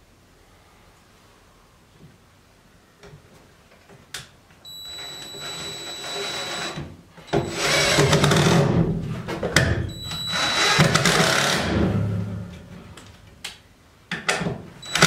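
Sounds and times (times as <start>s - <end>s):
cordless drill driving screws: 5.0s - 8.7s, 10.2s - 11.7s.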